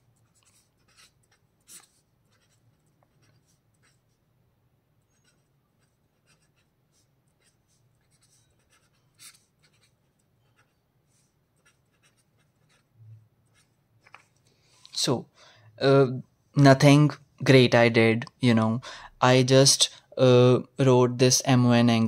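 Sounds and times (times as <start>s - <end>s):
pen scratching on paper: 0.0s - 4.3s, 5.0s - 13.8s.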